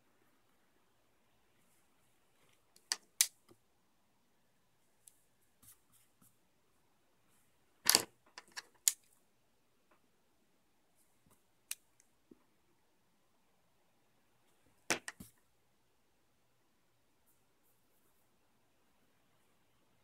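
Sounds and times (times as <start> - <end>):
pencils clicking on a desk: 2.7 - 3.6, 7.9 - 9.1.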